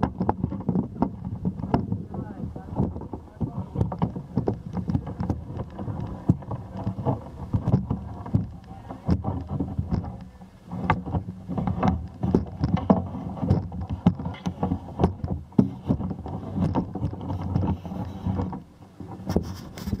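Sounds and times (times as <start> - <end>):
camera handling knocks and rubbing: 10.8 - 20.0.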